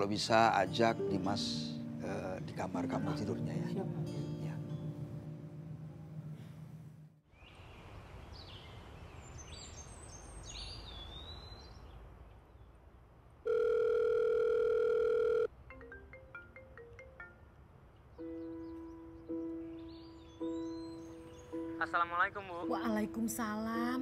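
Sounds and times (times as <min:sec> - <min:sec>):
soft mallet background music: 0:00.0 - 0:05.6, 0:15.6 - 0:24.0
telephone ringback tone beep: 0:13.5 - 0:15.5
high chirps: 0:18.2 - 0:21.8.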